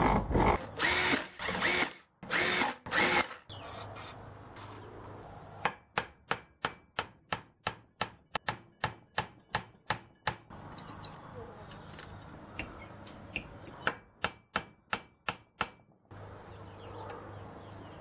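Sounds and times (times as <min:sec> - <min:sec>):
power tool spinning up: 0:00.6 - 0:03.4.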